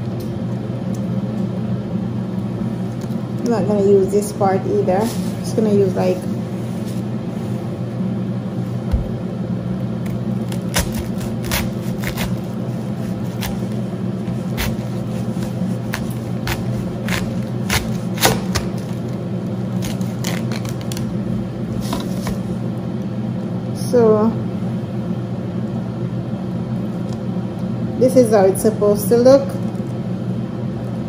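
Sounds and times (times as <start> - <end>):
low hum: 0.0 - 31.0
cabbage crunching and snapping: 10.0 - 21.1.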